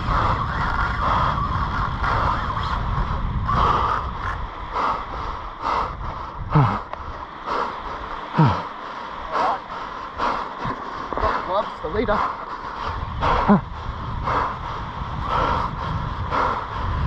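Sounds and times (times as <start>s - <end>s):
low rumble: 0.0s - 17.0s
man breathing heavily: 0.0s - 17.0s
man groaning: 8.4s - 8.7s.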